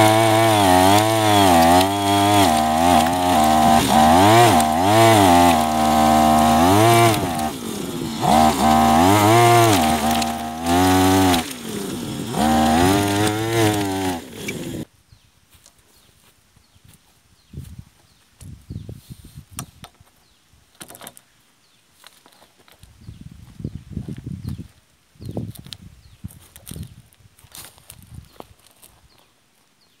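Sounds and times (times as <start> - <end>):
disc cutting through soil: 0.0 - 14.9
small two-stroke engine revving: 0.0 - 14.9.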